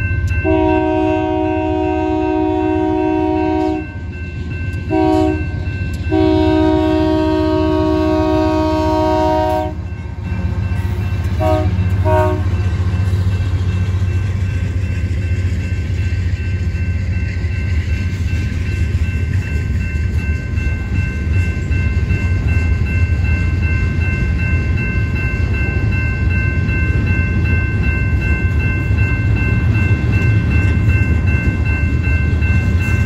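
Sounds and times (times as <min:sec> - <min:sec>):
crossing bell ringing: 0:00.0 - 0:33.0
train rumbling past: 0:00.0 - 0:33.0
locomotive air horn: 0:00.4 - 0:04.0, 0:04.9 - 0:05.5, 0:06.1 - 0:09.8, 0:11.4 - 0:12.6.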